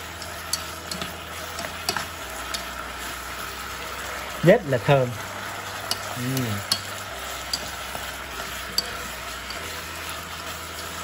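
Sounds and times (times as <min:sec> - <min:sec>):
food sizzling in a saucepan: 0:00.0 - 0:11.0
utensil clicking against pan: 0:00.1 - 0:02.8, 0:05.8 - 0:09.8.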